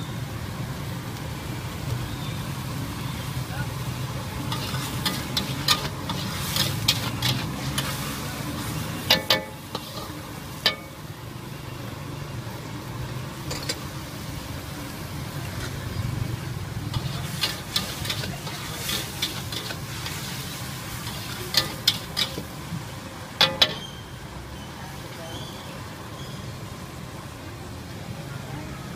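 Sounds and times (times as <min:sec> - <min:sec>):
food sizzling: 0:00.0 - 0:27.8
metal spatula scraping a wok: 0:04.4 - 0:11.0, 0:13.4 - 0:14.0, 0:16.8 - 0:22.5, 0:23.4 - 0:24.0.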